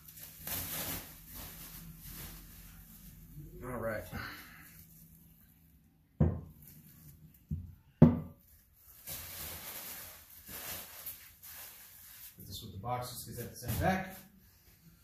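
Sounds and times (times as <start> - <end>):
bubble wrap crinkling: 0.0 - 5.5, 8.4 - 12.5.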